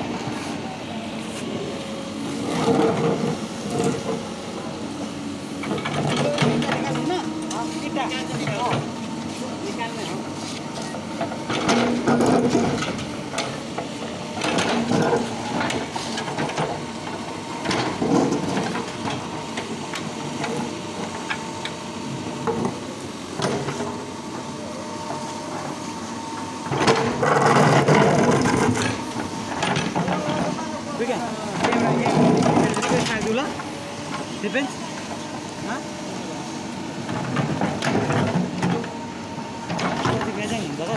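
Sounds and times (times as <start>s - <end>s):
diesel engine running: 0.0s - 40.9s.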